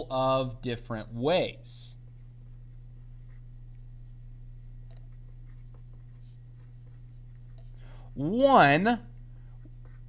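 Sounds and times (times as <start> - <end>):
low electrical hum: 0.0 - 10.0
marker scratching on paper: 2.1 - 4.2, 4.9 - 8.3, 9.0 - 10.0.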